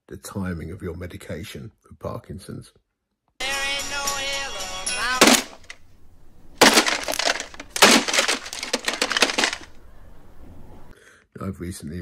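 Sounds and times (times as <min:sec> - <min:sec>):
song from clock radio: 0:03.4 - 0:05.2
clock radio crashing and breaking: 0:05.0 - 0:05.8, 0:06.6 - 0:09.8.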